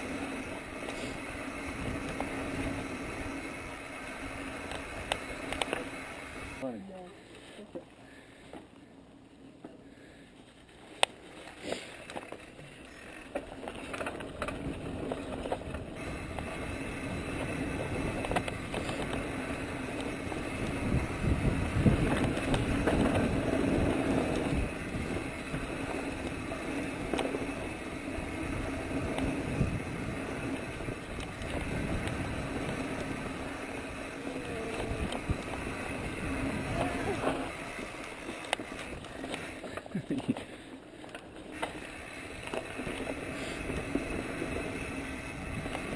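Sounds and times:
bike tyres rolling on dirt: 0:00.0 - 0:06.6, 0:09.6 - 0:45.9
bike rattling and knocking: 0:12.0 - 0:45.9.

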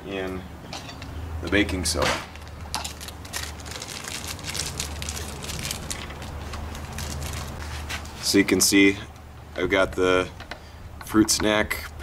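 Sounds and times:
plastic bag crinkling: 0:02.3 - 0:07.8.

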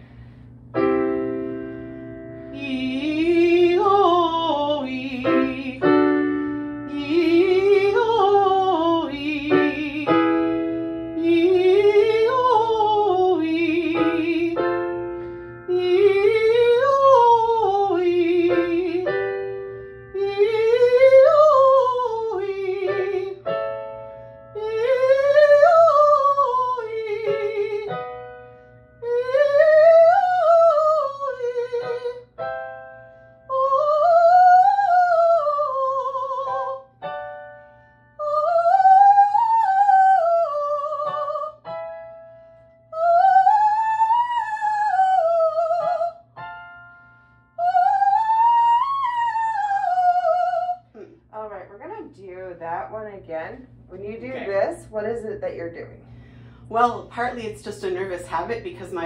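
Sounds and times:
piano notes: 0:00.0 - 0:59.0
woman singing vocal scales: 0:02.5 - 0:14.7, 0:15.7 - 0:19.4, 0:20.1 - 0:23.5, 0:24.6 - 0:28.1, 0:29.0 - 0:32.3, 0:33.5 - 0:36.9, 0:38.2 - 0:41.7, 0:42.9 - 0:46.2, 0:47.6 - 0:51.3.

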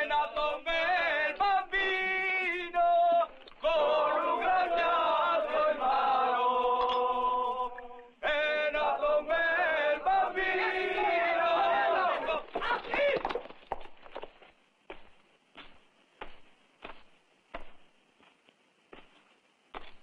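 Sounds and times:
men singing: 0:00.0 - 0:12.9.

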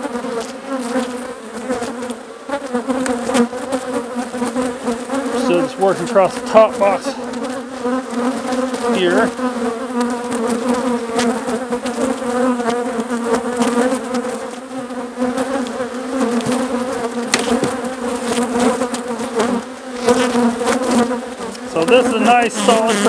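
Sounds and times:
honeybees buzzing: 0:00.0 - 0:23.0
wooden frames clicking: 0:17.3 - 0:17.9.

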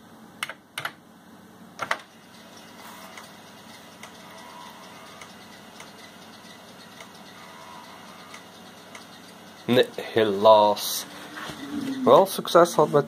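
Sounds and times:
disk drive running: 0:02.0 - 0:13.0
fast faint ticking: 0:02.2 - 0:12.2.

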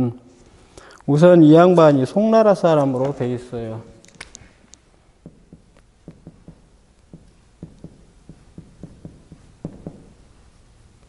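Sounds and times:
marker writing on whiteboard: 0:05.2 - 0:10.2.

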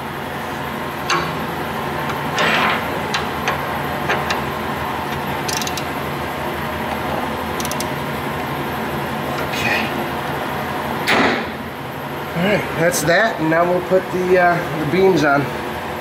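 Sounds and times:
steady low hum: 0:00.0 - 0:16.0
ratchet wrench clicking: 0:05.1 - 0:05.9, 0:07.6 - 0:08.0.

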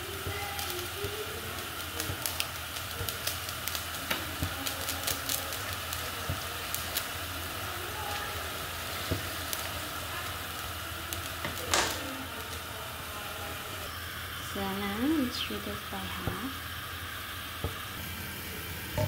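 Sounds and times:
spatula stirring pan: 0:00.0 - 0:13.6
liquid sizzling and bubbling: 0:00.0 - 0:19.0.

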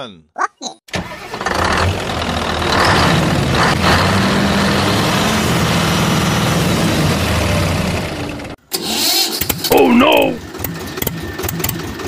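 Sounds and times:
truck engine idling: 0:01.0 - 0:08.6.

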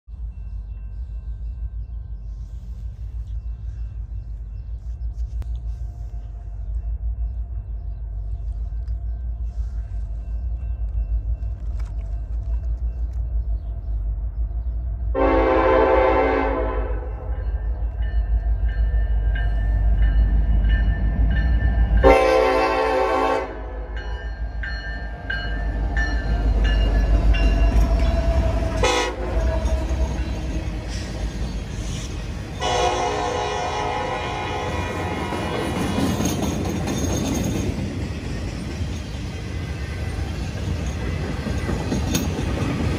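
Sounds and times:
train rumbling past: 0:00.1 - 0:42.9
locomotive air horn blasts: 0:15.2 - 0:17.3, 0:22.0 - 0:24.0, 0:28.7 - 0:30.1, 0:32.6 - 0:35.4.

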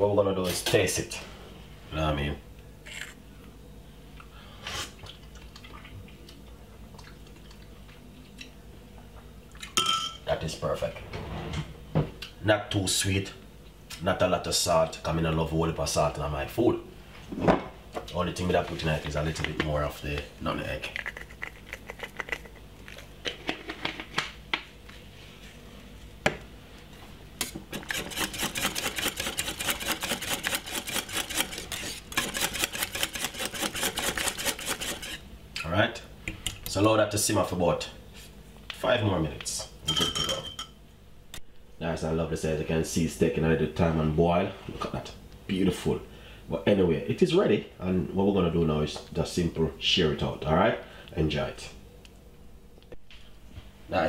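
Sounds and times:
low steady hum: 0:00.0 - 0:54.0
whisk scraping a metal pan: 0:27.4 - 0:35.2.

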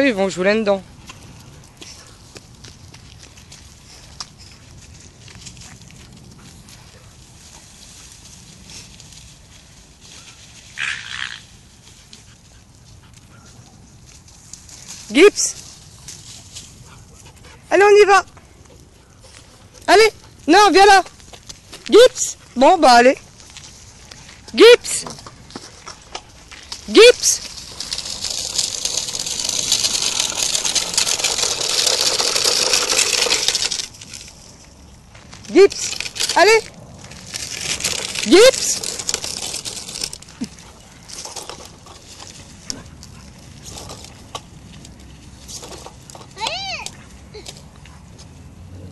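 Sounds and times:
footsteps crunching on gravel: 0:01.0 - 0:07.0, 0:25.3 - 0:29.5.

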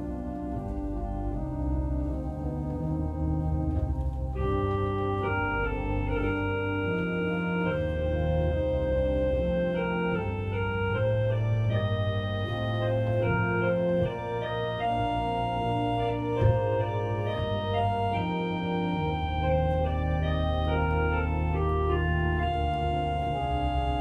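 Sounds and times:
church organ playing chords: 0:00.0 - 0:24.0
short thump: 0:16.3 - 0:17.8.

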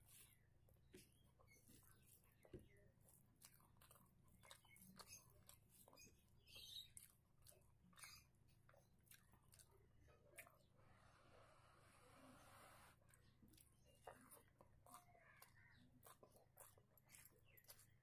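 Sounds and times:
fingers mixing food on plate: 0:00.0 - 0:11.0, 0:12.9 - 0:18.0
chewing: 0:00.0 - 0:11.2, 0:12.9 - 0:18.0
faint low hum: 0:00.0 - 0:18.0.

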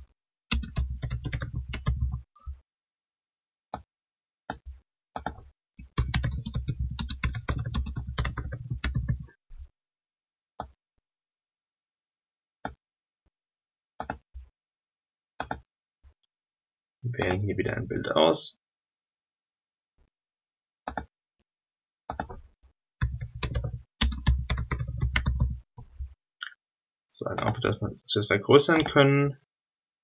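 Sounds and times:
typing on keyboard: 0:00.5 - 0:02.3, 0:05.2 - 0:09.3, 0:23.0 - 0:25.6, 0:27.4 - 0:27.8.

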